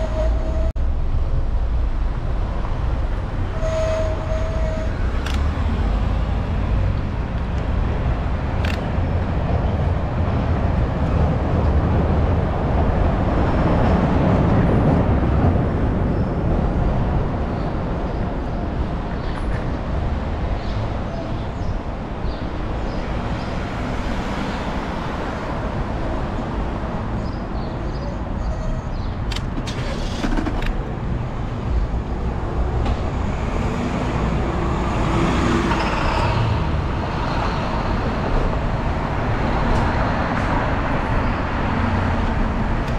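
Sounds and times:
wind rumble on microphone: 0.0 - 29.4
passing car traffic: 0.0 - 42.9.

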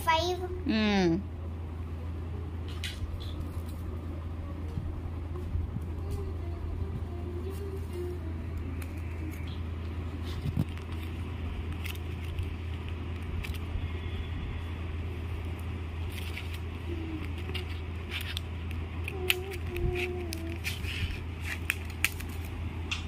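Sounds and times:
steady low hum: 0.0 - 23.0
paper strips clicking and rustling: 10.2 - 13.7, 15.4 - 23.0.

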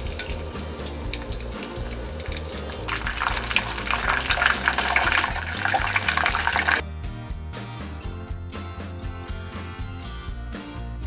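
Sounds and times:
oil sizzling and crackling: 0.0 - 6.8
background music: 0.0 - 11.0.

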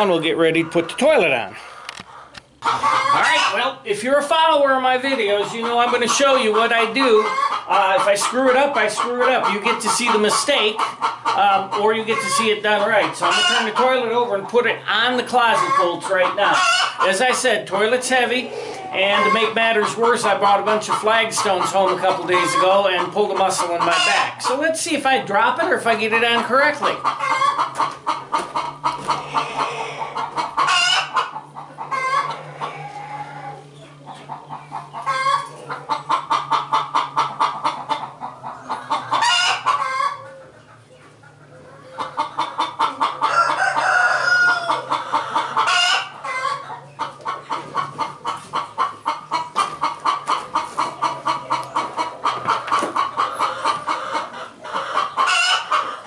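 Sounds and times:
chickens cackling: 0.0 - 56.0
rooster crowing: 43.3 - 44.9.

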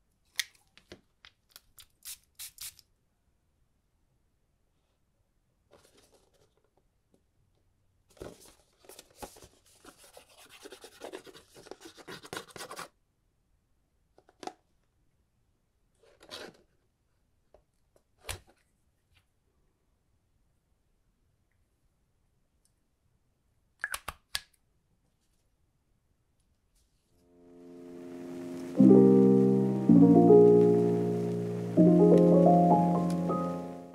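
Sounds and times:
scratching and rustling cardboard: 8.1 - 12.9.

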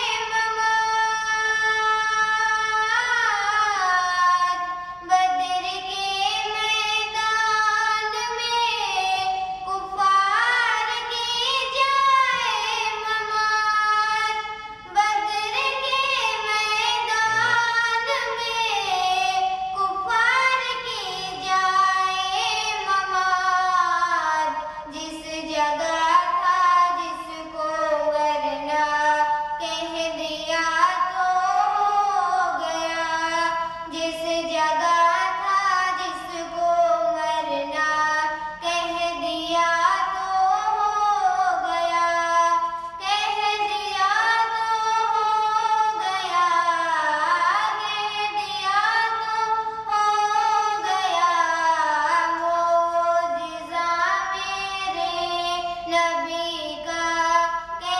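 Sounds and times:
girl singing into microphone: 0.0 - 57.9.

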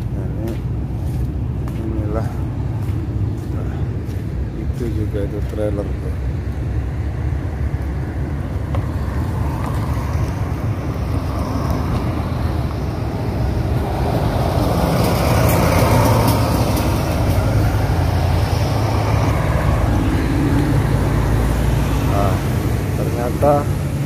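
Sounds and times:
highway traffic rumble: 0.0 - 24.0
heavy truck passing: 6.2 - 24.0.

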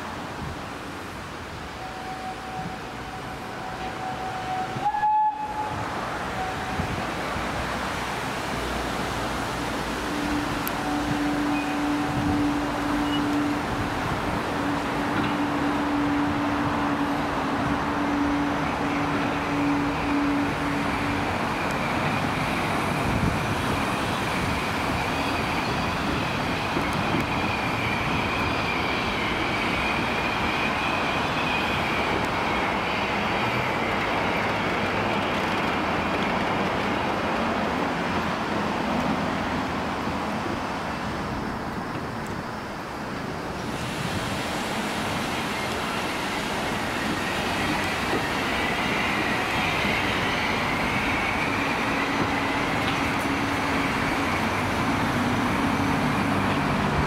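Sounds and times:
train wheels rumbling: 0.0 - 57.0
high squeal of wheel flanges: 10.1 - 13.6, 23.9 - 35.6, 45.3 - 56.6.

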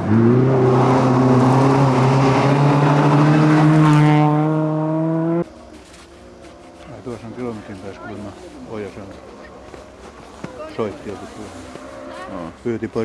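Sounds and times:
rally car engine at high revs: 0.0 - 5.4.

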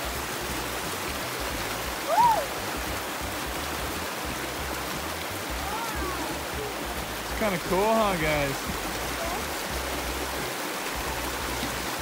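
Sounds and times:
creek water rushing over stones: 0.0 - 12.0
brief high cry: 2.1 - 2.5.

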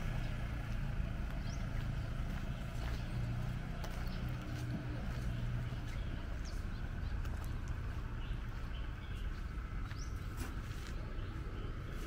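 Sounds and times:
low street rumble: 0.0 - 12.0
bird chirps: 4.0 - 12.0.

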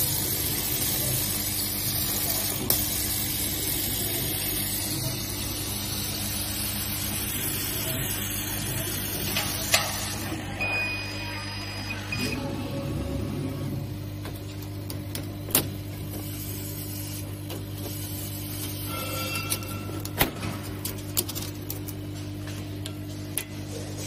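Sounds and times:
laser cutter hiss and hum: 0.0 - 24.0
thin high tone: 18.8 - 20.2.

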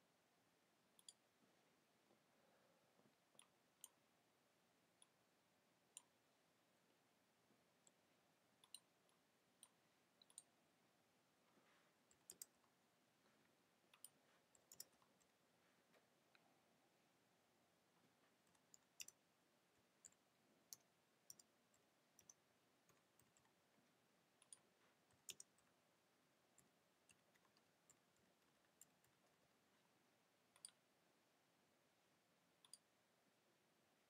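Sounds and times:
mouse clicks: 1.0 - 1.2, 8.6 - 10.5, 12.1 - 12.7, 13.9 - 15.4, 18.3 - 19.2, 19.8 - 23.6, 24.4 - 25.7, 30.5 - 30.8, 32.6 - 32.9
keyboard typing clicks: 8.6 - 10.5, 12.1 - 12.6, 14.0 - 15.3, 18.4 - 19.2, 20.0 - 21.5, 22.2 - 23.6, 24.4 - 25.6, 30.5 - 30.8.

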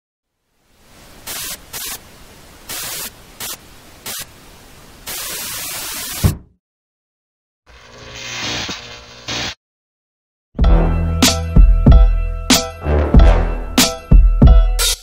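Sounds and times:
television static hiss: 0.3 - 6.3.

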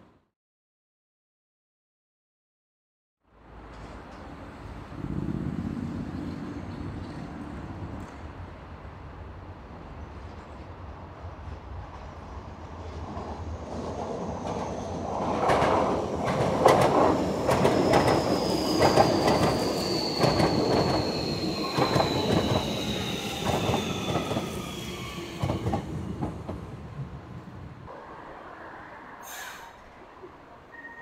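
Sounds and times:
wheels clacking over rail joints: 15.2 - 21.0.

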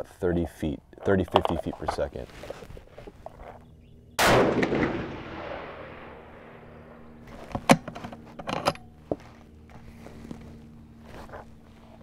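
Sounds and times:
rifle shot echo: 4.2 - 7.4.

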